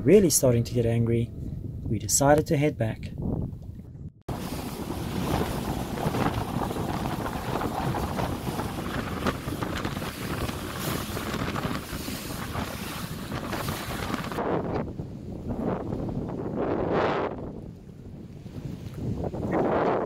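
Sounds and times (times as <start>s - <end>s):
wind buffeting microphone: 0.0s - 20.0s
rushing water: 4.3s - 14.4s
hull slapping on waves: 4.3s - 20.0s.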